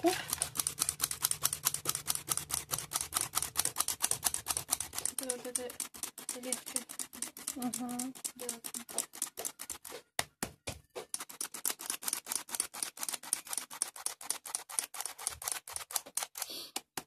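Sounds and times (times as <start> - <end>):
metal sieve rattling: 0.0 - 10.0.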